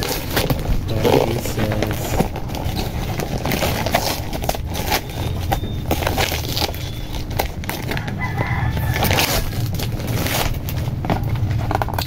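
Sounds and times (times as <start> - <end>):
metallic gift wrap crinkling and tearing: 0.0 - 12.0
rooster crowing: 7.8 - 9.9.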